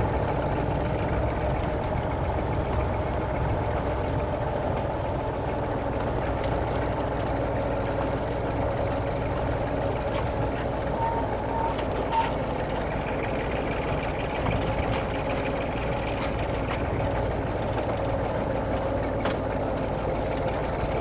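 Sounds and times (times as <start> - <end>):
train diesel engine running: 0.0 - 21.0.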